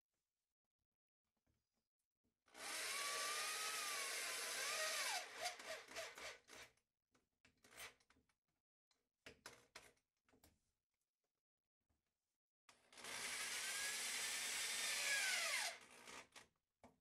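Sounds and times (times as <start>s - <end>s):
electric drill driving screw: 2.6s - 6.2s, 13.0s - 16.2s.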